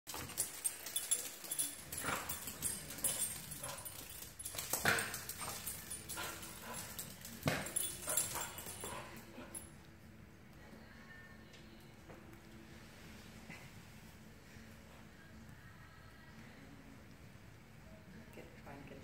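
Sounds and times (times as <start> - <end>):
dog claws clicking on hard floor: 0.1 - 9.3.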